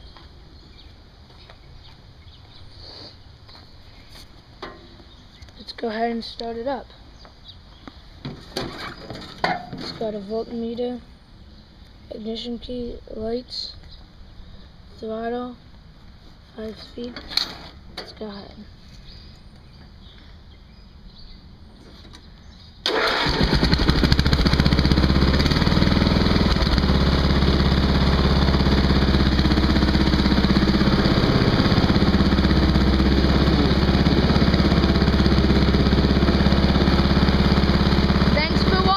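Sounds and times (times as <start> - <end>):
electric starter cranking: 22.8 - 38.9
tractor engine running: 22.9 - 38.9.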